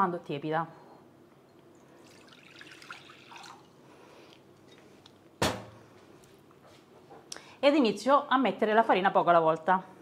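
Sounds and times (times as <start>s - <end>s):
water trickling into glass bowl: 1.9s - 3.8s.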